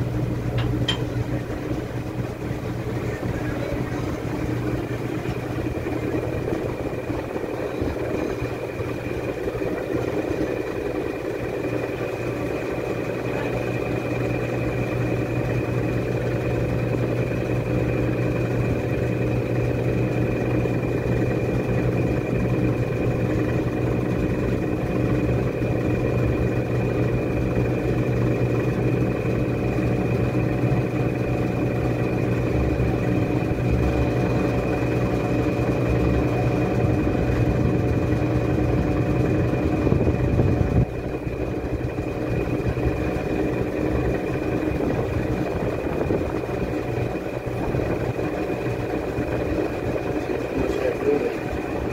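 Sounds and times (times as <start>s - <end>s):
washing machine humming: 0.0s - 51.9s.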